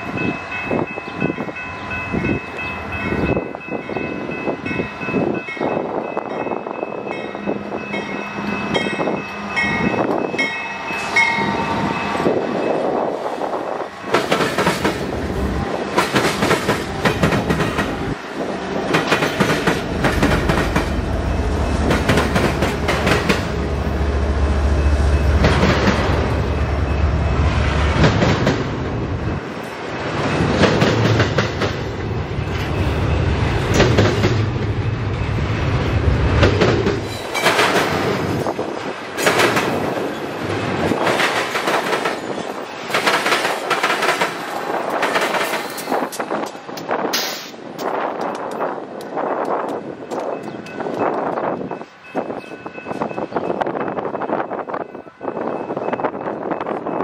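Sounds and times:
crossing bell ringing: 0:00.0 - 0:14.6, 0:20.3 - 0:27.6, 0:32.2 - 0:33.8, 0:49.8 - 0:57.0
diesel locomotive rumble: 0:00.0 - 0:57.0
train cars clacking over rails: 0:00.0 - 0:57.0.

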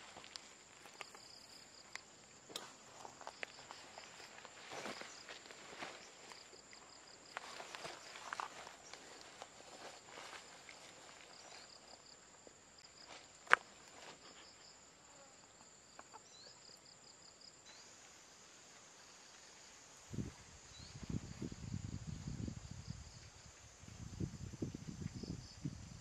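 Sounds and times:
low rustling and crackling: 0:00.0 - 0:12.1
insects chirping: 0:00.0 - 0:26.0.

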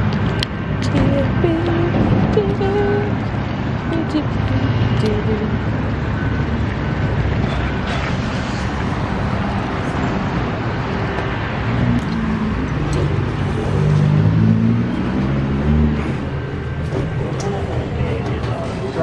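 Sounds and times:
car engine: 0:00.0 - 0:19.0
road traffic: 0:00.0 - 0:19.0.

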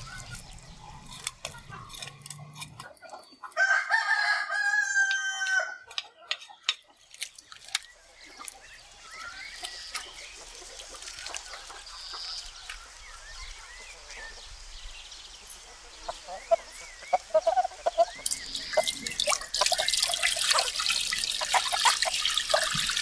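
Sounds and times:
knife scraping fish: 0:00.0 - 0:03.2
rooster crowing: 0:03.5 - 0:05.9
hens clucking: 0:15.6 - 0:23.0.

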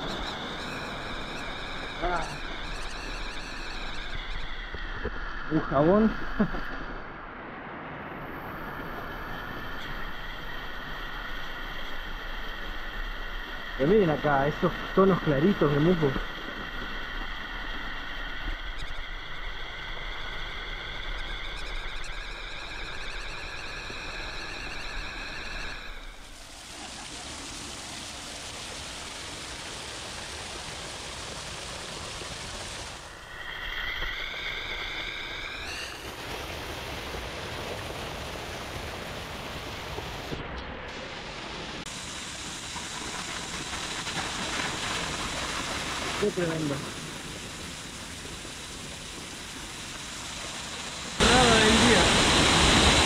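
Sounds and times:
high wavering whine: 0:00.0 - 0:27.1, 0:33.0 - 0:36.2, 0:45.6 - 0:53.0
waterfall splashing: 0:26.2 - 0:33.1, 0:35.9 - 0:53.0.

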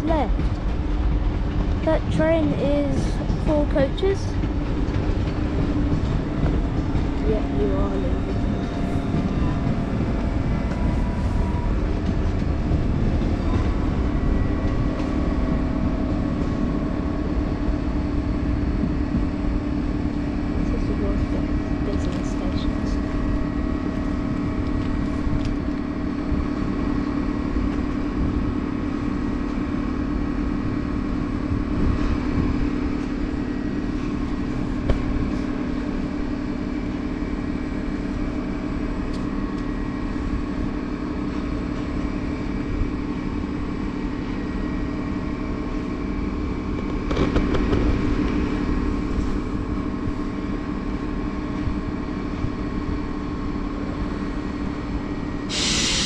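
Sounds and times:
electric locomotive hum: 0:00.0 - 0:56.0.

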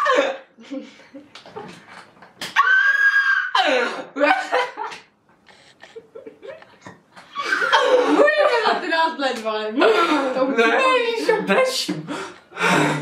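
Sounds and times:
high-pitched squeal of laughter: 0:02.6 - 0:03.7
man and woman laughing: 0:05.8 - 0:08.7.

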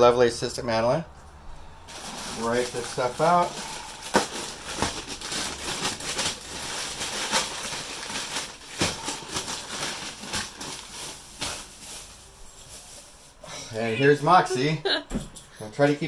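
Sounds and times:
paper bag crinkling: 0:01.9 - 0:13.4
plastic bag crackling: 0:01.9 - 0:14.7.

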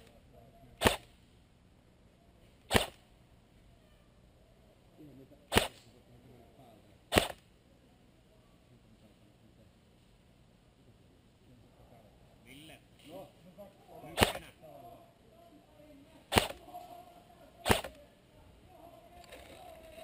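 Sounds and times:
airsoft rifle shots: 0:00.8 - 0:01.1, 0:02.7 - 0:03.1, 0:05.5 - 0:05.9, 0:07.1 - 0:07.4, 0:14.1 - 0:14.5, 0:16.3 - 0:16.7, 0:17.6 - 0:18.0.

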